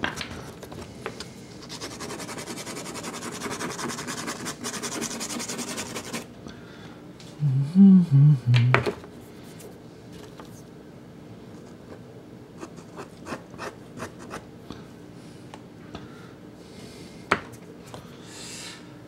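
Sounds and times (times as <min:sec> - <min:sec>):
pastel scratching across paper: 0:01.6 - 0:06.3.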